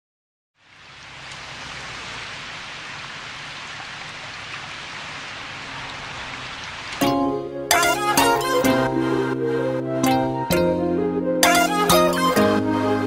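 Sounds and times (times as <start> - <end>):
rain falling: 0.6 - 9.5.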